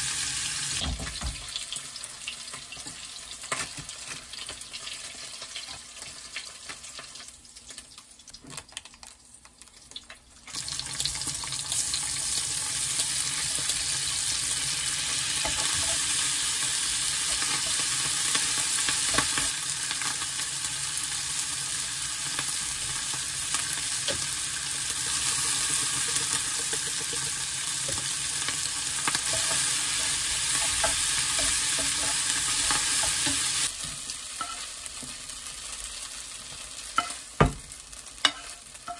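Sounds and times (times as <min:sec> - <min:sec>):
food sizzling in frying pan: 0:00.0 - 0:38.9
spatula scraping pan: 0:29.2 - 0:33.7, 0:38.2 - 0:38.9.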